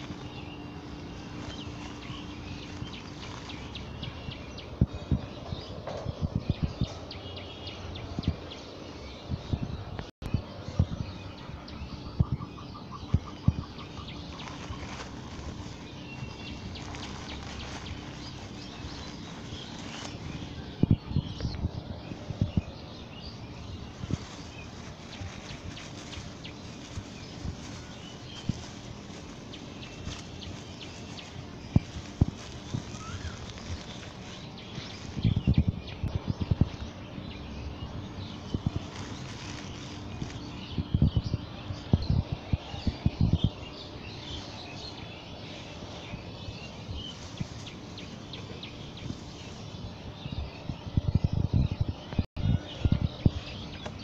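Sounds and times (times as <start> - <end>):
footsteps in grass: 0.0 - 4.8, 13.6 - 36.9, 37.9 - 41.0, 42.8 - 50.4
faint bird chirps: 9.2 - 37.8.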